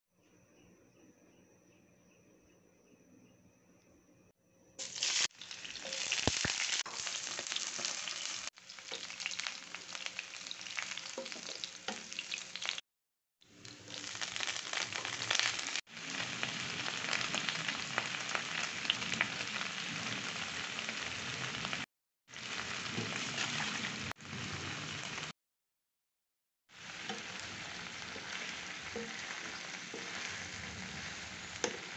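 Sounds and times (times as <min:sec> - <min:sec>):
shallots sizzling in hot oil: 0:04.8 - 0:12.8, 0:13.5 - 0:25.3, 0:26.7 - 0:31.9.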